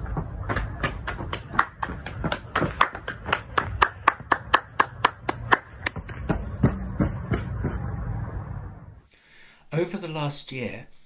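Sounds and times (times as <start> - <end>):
person clapping hands: 0.5 - 6.2.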